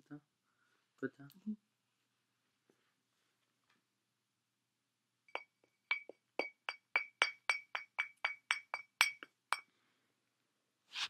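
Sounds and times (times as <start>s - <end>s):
bird tapping glass bottle: 5.3s - 9.7s.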